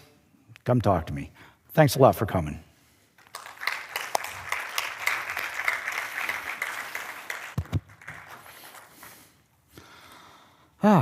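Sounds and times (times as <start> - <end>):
audience applauding: 3.2 - 9.1.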